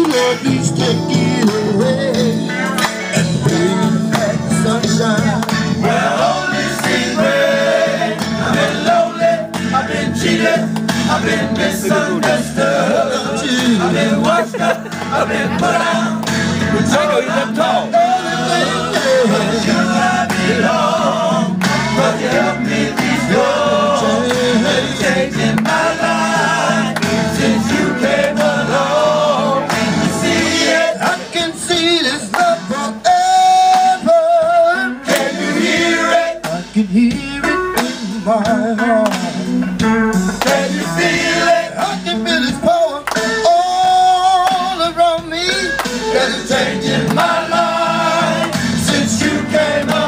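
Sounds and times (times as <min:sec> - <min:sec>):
hands clapping along: 0:00.0 - 0:00.5, 0:02.7 - 0:03.4, 0:04.0 - 0:05.8, 0:06.7 - 0:07.2, 0:10.6 - 0:11.1, 0:16.1 - 0:16.5, 0:21.5 - 0:22.0, 0:22.9 - 0:23.3, 0:24.2 - 0:24.7, 0:25.4 - 0:26.0, 0:26.9 - 0:27.2, 0:28.2 - 0:28.7, 0:32.2 - 0:32.7, 0:33.6 - 0:34.1, 0:35.1 - 0:35.4, 0:39.0 - 0:39.6, 0:40.3 - 0:40.8, 0:42.9 - 0:43.6, 0:44.3 - 0:44.8, 0:45.7 - 0:46.0, 0:46.9 - 0:47.6, 0:48.3 - 0:50.0
men singing gospel song: 0:00.0 - 0:50.0.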